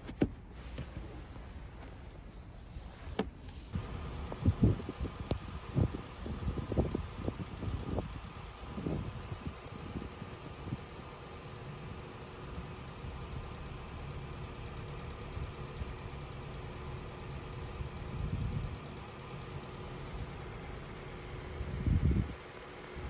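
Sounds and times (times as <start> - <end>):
faint constant hum: 0.0 - 23.0
low mechanical rumble: 0.0 - 23.0
wind buffeting microphone: 4.3 - 10.8, 21.6 - 22.4.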